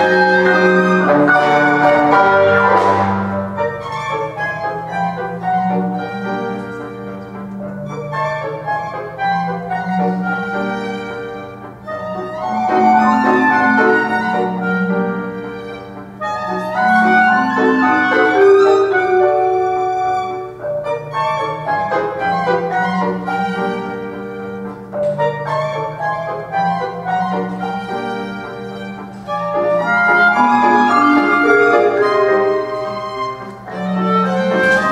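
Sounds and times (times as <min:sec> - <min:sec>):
upright piano: 0:00.0 - 0:34.9
violin: 0:00.0 - 0:34.9.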